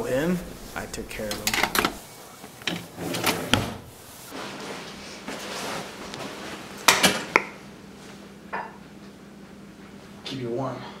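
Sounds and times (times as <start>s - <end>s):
rustling: 0.0s - 6.8s.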